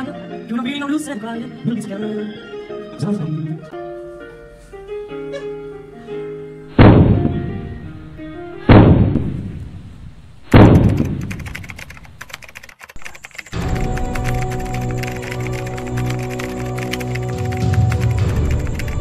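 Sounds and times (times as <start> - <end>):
backing music held notes: 0.0 - 8.7, 13.5 - 19.0
heavy booms: 6.7 - 8.0, 8.6 - 11.3.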